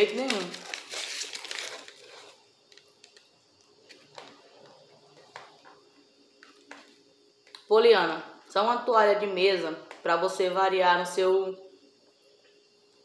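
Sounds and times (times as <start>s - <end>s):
paper rustling and crinkling: 0.0s - 3.2s.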